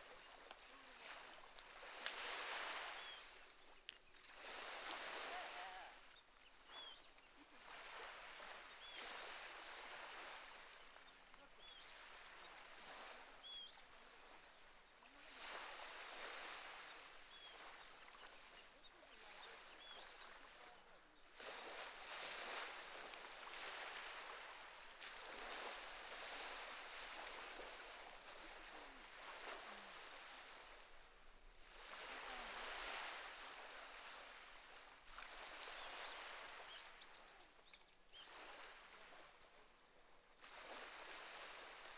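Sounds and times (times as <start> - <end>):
faint bird chirps: 2.8 - 4.4, 5.6 - 7.6, 8.2 - 9.4, 10.2 - 15.1, 16.5 - 21.3, 35.6 - 40.4.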